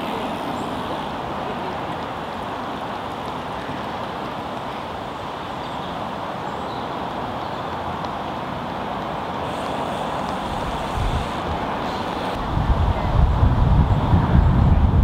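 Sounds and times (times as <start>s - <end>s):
distant road traffic roar: 0.0s - 15.0s.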